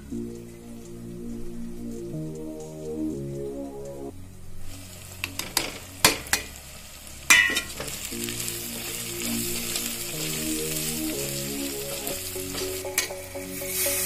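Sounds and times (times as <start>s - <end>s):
onions sizzling: 4.6s - 14.0s.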